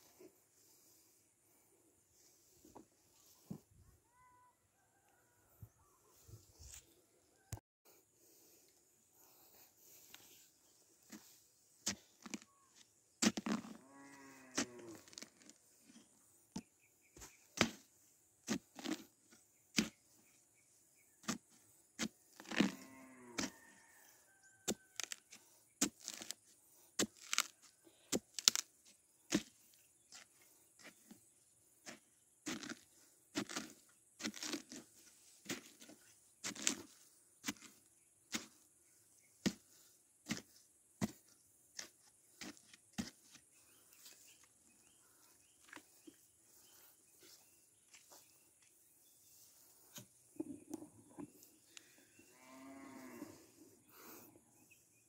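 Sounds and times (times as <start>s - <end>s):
cow mooing: 13.8s - 15.0s, 22.7s - 23.7s, 52.3s - 53.5s.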